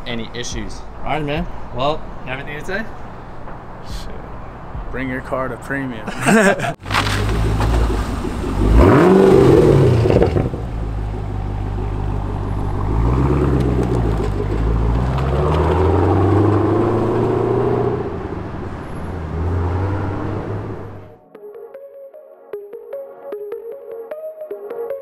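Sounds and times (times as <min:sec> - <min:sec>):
car engine revving and pulling away: 0:06.8 - 0:21.2.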